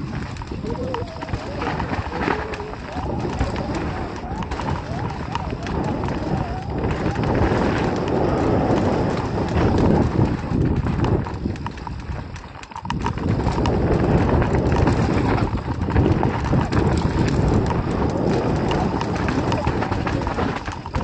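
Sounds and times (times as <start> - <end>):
bike rattling and clattering: 0.0 - 21.0
wind and tyre noise: 0.0 - 21.0.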